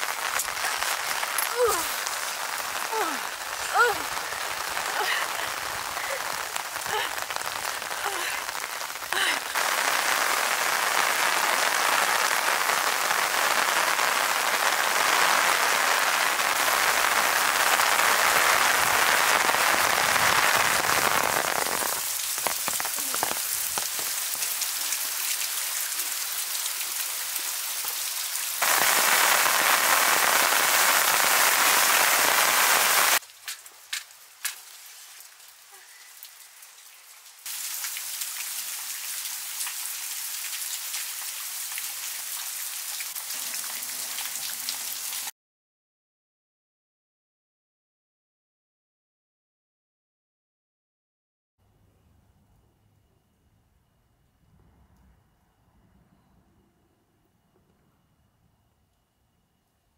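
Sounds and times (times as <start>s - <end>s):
steady rain falling: 0.0s - 45.3s.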